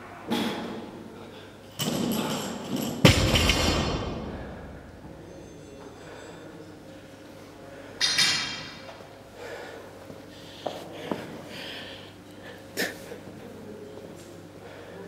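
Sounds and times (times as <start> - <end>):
man breathing hard: 9.4 - 13.1.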